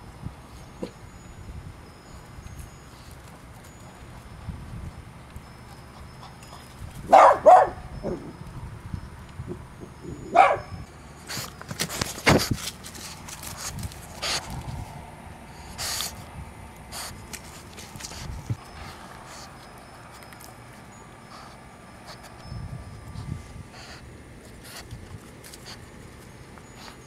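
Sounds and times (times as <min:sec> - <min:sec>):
puppy barking: 0:07.1 - 0:08.2, 0:10.3 - 0:10.8.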